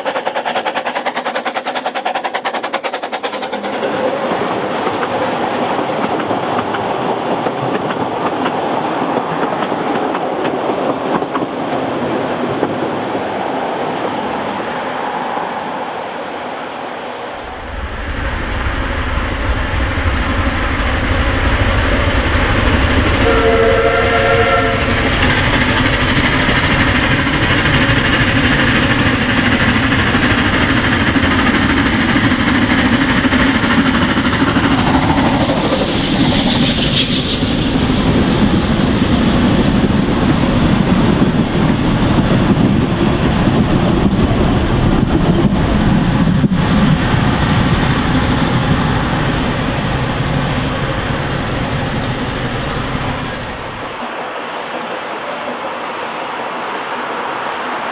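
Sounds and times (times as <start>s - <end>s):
steam locomotive passing: 0.0s - 57.9s
short steam whistle: 23.2s - 25.0s, 35.9s - 37.8s.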